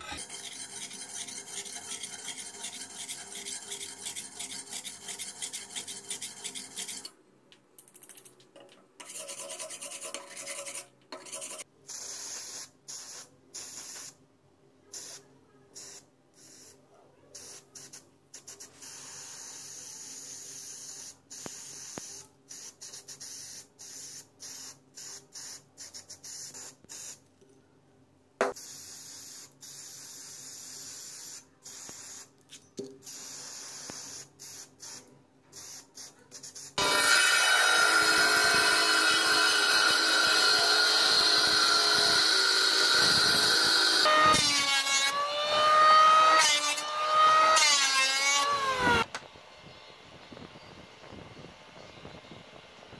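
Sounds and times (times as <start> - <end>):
abrasive rubbing metal blade: 0.0 - 7.1, 9.0 - 11.7
spray paint can hissing: 11.4 - 14.2, 17.4 - 27.2, 28.5 - 36.8.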